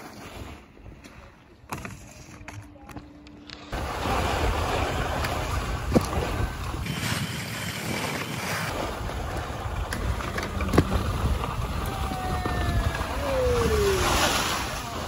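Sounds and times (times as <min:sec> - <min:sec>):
wind on microphone: 0:03.8 - 0:15.0.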